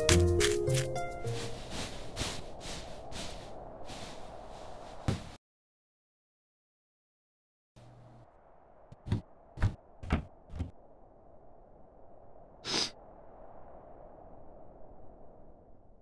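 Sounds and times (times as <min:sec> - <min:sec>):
faint steady hum: 0:07.8 - 0:10.3.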